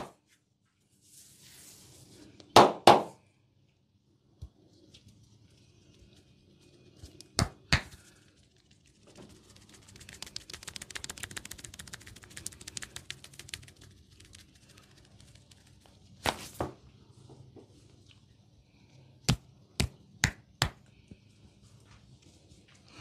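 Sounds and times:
hair crackling as it is tugged: 9.3 - 16.0.

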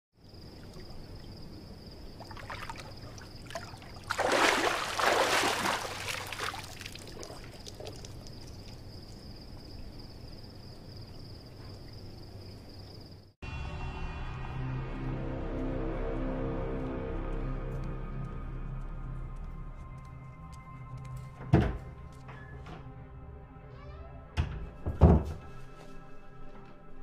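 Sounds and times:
water drips: 0.3 - 10.4
pool water lapping and sloshing: 0.4 - 9.2
water splashing and pouring off: 2.2 - 9.2.

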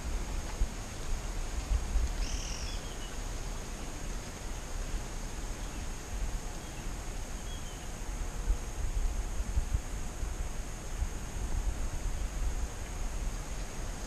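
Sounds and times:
wind rumble on microphone: 0.0 - 14.0
high insect buzz: 1.2 - 14.0
bird call: 2.2 - 3.2
faint bird chirps: 2.2 - 3.2, 6.6 - 7.9.

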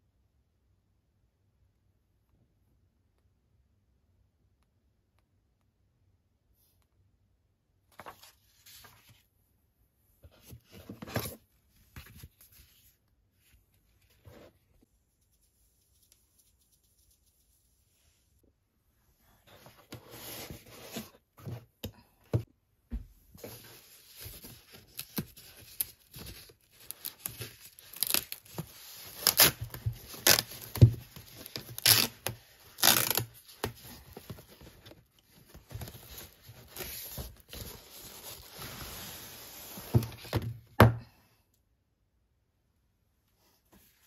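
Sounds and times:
packaging wrap rustling and tearing: 24.6 - 34.6.

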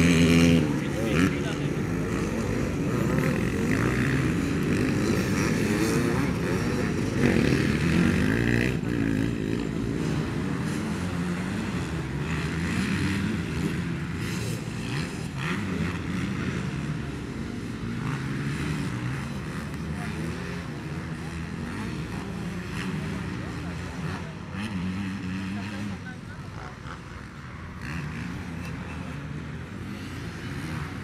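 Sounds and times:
motocross bike engines revving: 0.0 - 31.0.

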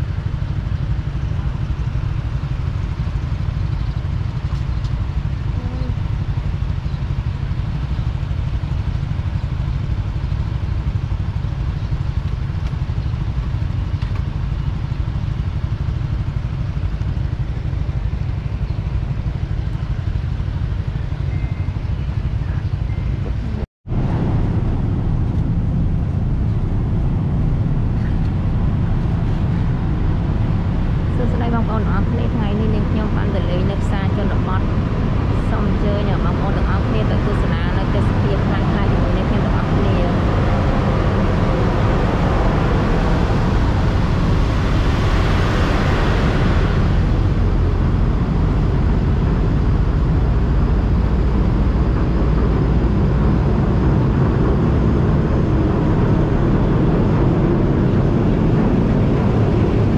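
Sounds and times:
motorbike engines idling: 0.0 - 23.6, 24.5 - 45.0.

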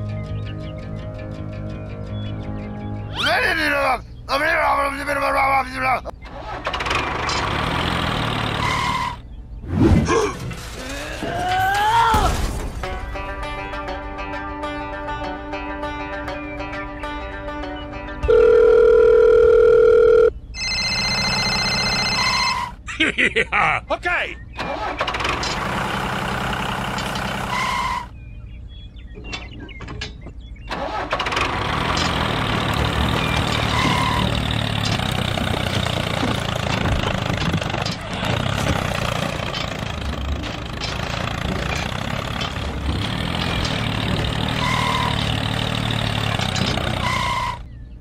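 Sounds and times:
tractor engine running: 6.1 - 9.5, 18.3 - 22.8, 24.5 - 48.0.

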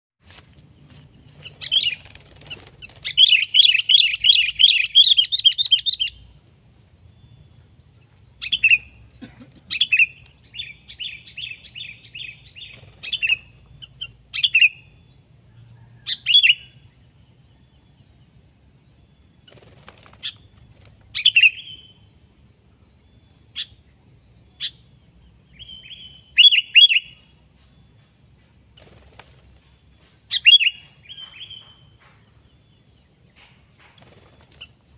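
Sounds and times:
bird chattering trill: 1.4 - 6.3.

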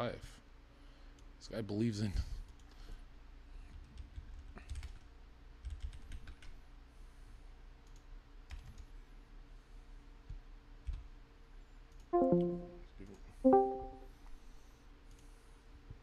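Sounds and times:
low steady hum: 12.2 - 14.1.

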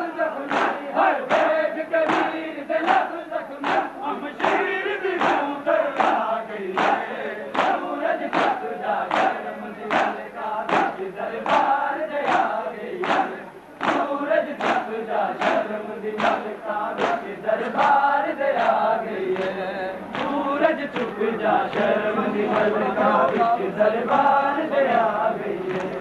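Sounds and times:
crowd chanting: 0.0 - 26.0
hands slapping chests: 0.5 - 4.6, 5.2 - 15.6, 16.2 - 18.0.

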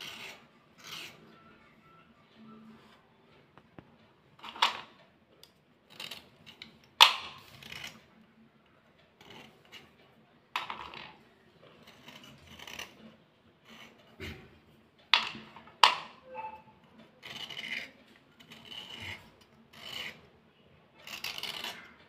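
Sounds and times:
blade scraping slate pencils: 0.0 - 1.4, 4.4 - 5.0, 5.9 - 8.2, 9.1 - 10.0, 10.6 - 22.0.

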